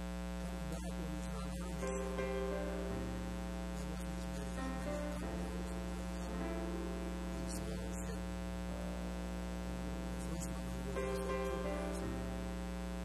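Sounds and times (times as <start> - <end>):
electrical mains hum: 0.0 - 13.0
quiet instrumental music: 1.6 - 12.5.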